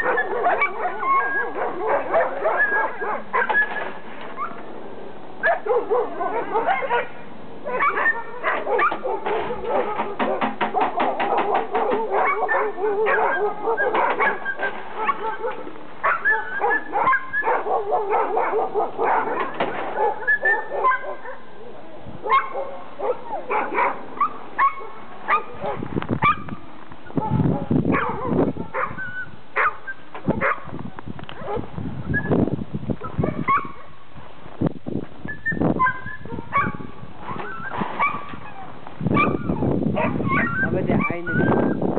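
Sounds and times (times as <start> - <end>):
dogs barking: 0.0 - 4.7, 5.4 - 31.7, 33.0 - 34.0, 35.8 - 41.8
muffled thumps and rustles: 8.6 - 12.2, 19.3 - 20.1, 36.6 - 40.4.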